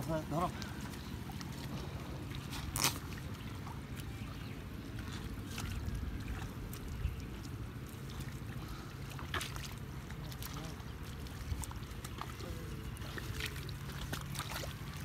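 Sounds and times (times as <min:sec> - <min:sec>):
low steady rumble: 0:00.0 - 0:15.0
hands splashing in muddy water: 0:05.0 - 0:15.0.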